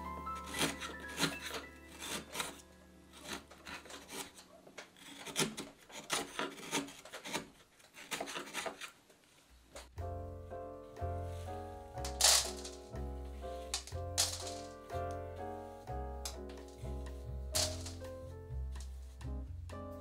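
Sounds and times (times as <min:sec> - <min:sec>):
background music: 0:00.0 - 0:04.4, 0:10.0 - 0:20.0
chisel scraping slices through wood: 0:00.0 - 0:09.0.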